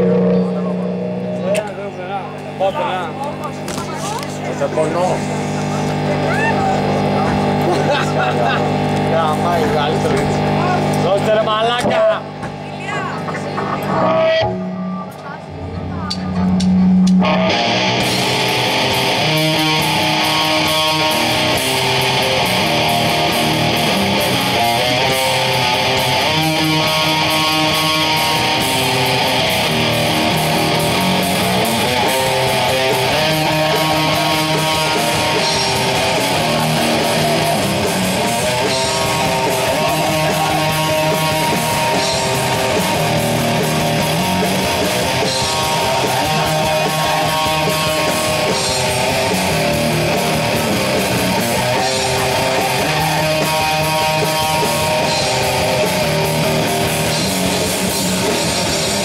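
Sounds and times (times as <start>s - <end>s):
bass riffing: 0.0s - 59.0s
distorted electric guitar: 0.0s - 59.0s
drums and cymbals: 12.5s - 59.0s.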